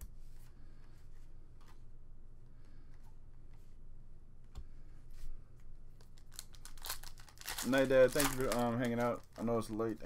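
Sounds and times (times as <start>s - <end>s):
steady low hum: 0.0s - 10.0s
cards clicking and rustling: 6.0s - 9.8s
foil wrapper rustling: 6.2s - 9.8s.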